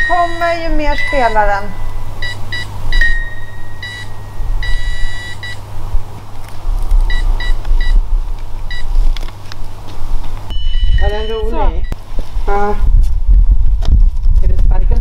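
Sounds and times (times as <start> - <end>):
electronic toy beeping: 0.0 - 1.4, 2.2 - 5.6
low steady hum: 0.0 - 15.0.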